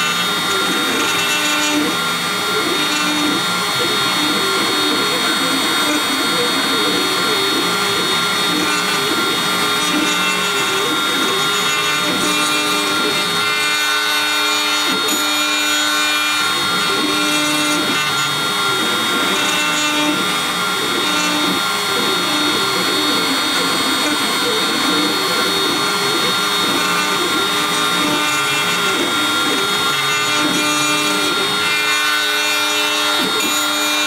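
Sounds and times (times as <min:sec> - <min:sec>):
router spindle whining: 0:00.0 - 0:34.0
stepper motor tones: 0:00.0 - 0:34.0.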